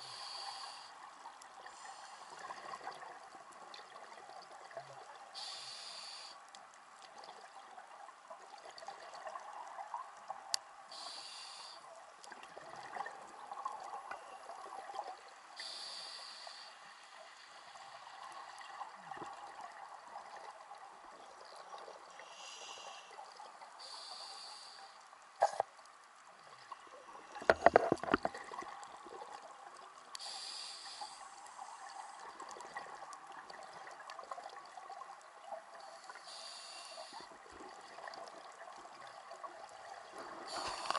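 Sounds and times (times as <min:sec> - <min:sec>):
regulator hissing inhale: 0:00.0 - 0:02.4, 0:05.4 - 0:06.5, 0:10.9 - 0:11.9, 0:15.6 - 0:17.8, 0:22.2 - 0:25.1, 0:30.1 - 0:32.2, 0:35.8 - 0:37.3, 0:40.3 - 0:40.9
crackle of bubbles: 0:00.0 - 0:36.4, 0:37.0 - 0:40.9.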